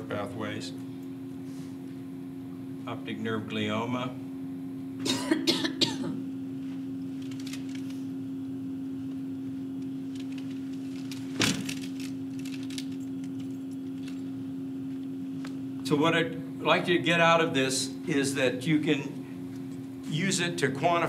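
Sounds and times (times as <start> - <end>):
room hum: 0.0 - 21.0
person coughing: 5.0 - 6.2.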